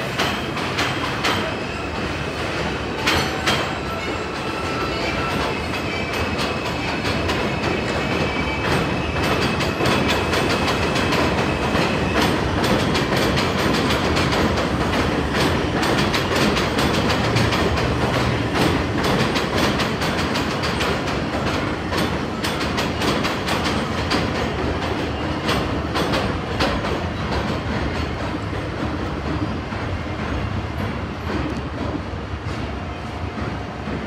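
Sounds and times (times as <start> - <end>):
elevated train rumbling overhead: 0.0 - 34.0
high wheel squeal: 3.2 - 10.3.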